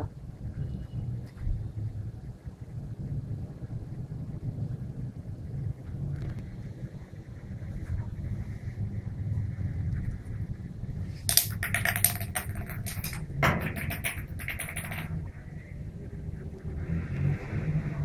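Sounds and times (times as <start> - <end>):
loud knock: 11.3 - 15.1
puppy claws clattering on tiles: 11.3 - 15.3.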